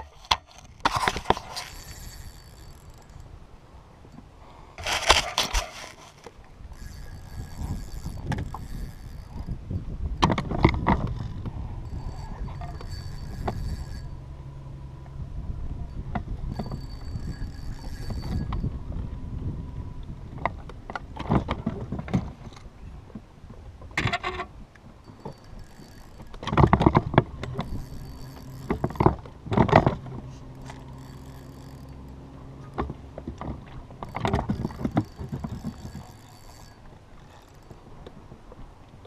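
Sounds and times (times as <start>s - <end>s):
fishing reel clattering: 0.0s - 4.2s, 4.8s - 14.6s, 15.8s - 18.7s, 24.0s - 38.2s.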